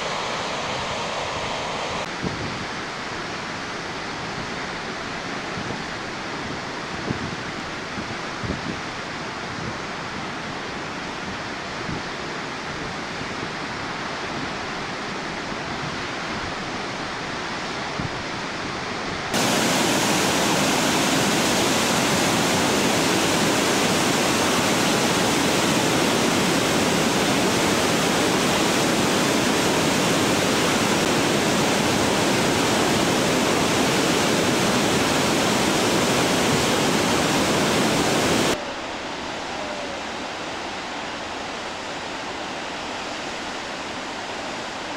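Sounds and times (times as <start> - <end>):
waterfall rushing: 0.0 - 2.1, 19.3 - 44.9.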